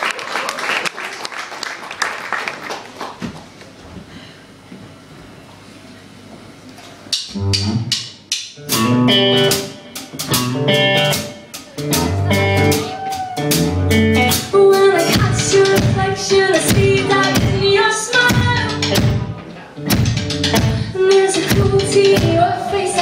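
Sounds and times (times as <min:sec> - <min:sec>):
drum kit beat: 0:07.1 - 0:23.0
electric guitar chords: 0:08.6 - 0:23.0.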